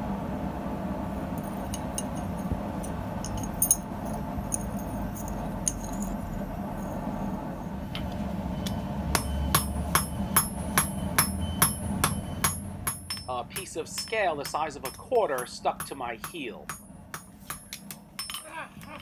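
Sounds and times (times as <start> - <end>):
steady low hum: 0.0 - 19.0
hammer striking metal on anvil: 9.1 - 18.9
metallic clinks of steel: 18.2 - 19.0.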